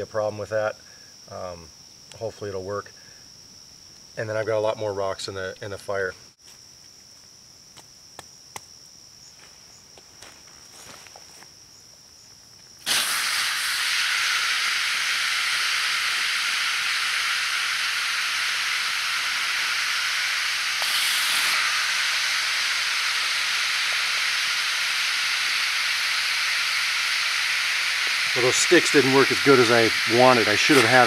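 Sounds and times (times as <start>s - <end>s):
hot stones sizzling in water: 12.8s - 31.0s.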